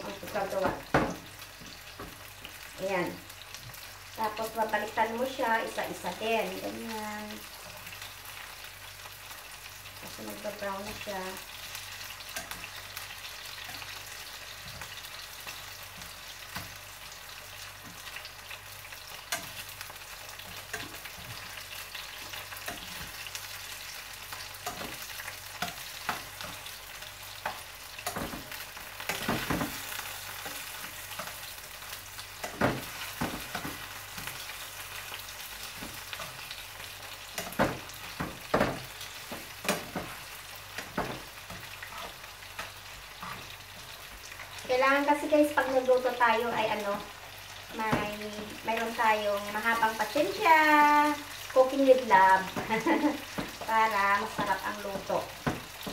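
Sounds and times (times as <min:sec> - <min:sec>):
meat sizzling in oil: 0:00.0 - 0:55.9
metal tongs clicking on pan: 0:12.3 - 0:12.7, 0:19.3 - 0:19.6, 0:20.5 - 0:21.0, 0:24.6 - 0:26.6, 0:27.4 - 0:28.4.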